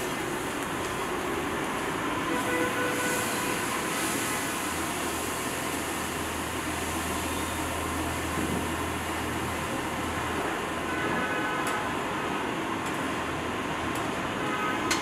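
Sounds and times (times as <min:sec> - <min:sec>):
broad traffic hiss: 0:00.0 - 0:15.0.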